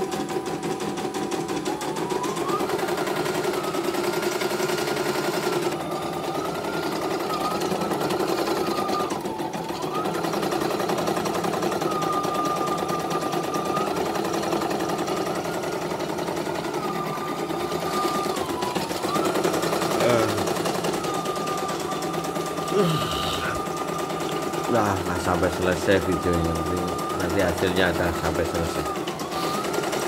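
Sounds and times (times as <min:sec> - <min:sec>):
embroidery machine needle chatter: 0:00.0 - 0:30.0
motor tone: 0:06.2 - 0:10.2, 0:11.9 - 0:29.7.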